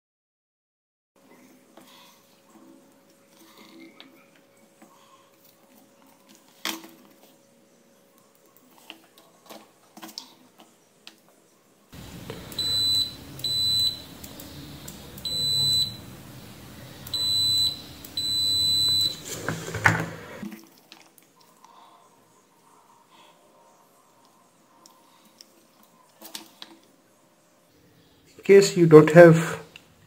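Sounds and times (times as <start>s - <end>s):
high-pitched multimeter beeps: 12.3s - 16.1s, 17.0s - 19.2s.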